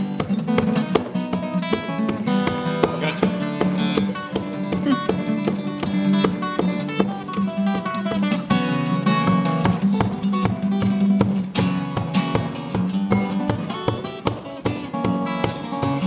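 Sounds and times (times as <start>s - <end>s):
fingerpicked acoustic guitar: 0.0s - 16.0s.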